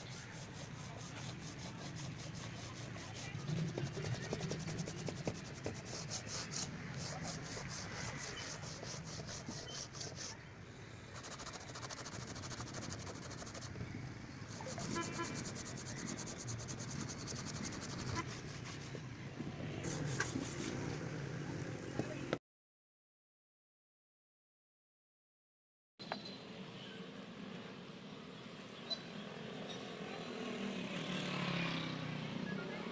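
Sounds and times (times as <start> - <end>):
hand sanding rubbing strokes: 0.0 - 10.4, 11.1 - 13.7, 14.5 - 19.1, 19.8 - 20.8.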